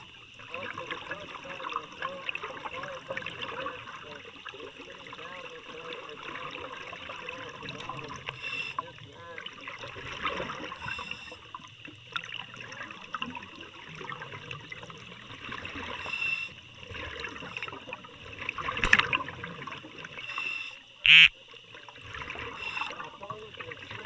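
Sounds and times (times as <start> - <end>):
underwater gurgling and bubbling: 0.0 - 20.7
loud buzzing burst: 21.1 - 21.3.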